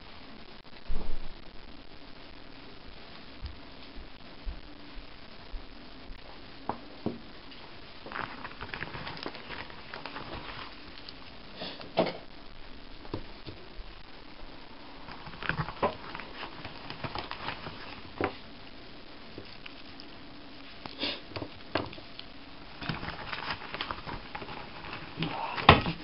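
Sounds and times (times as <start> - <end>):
wrappers rustling and crinkling: 7.5 - 11.6, 14.6 - 20.9, 21.6 - 26.0.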